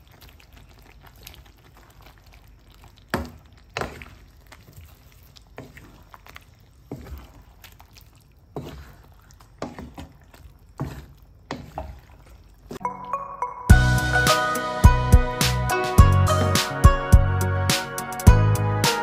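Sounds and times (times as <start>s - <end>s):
faint simmer: 0.0s - 16.6s
wooden spatula scraping a pan: 3.1s - 12.8s
music: 12.8s - 19.0s.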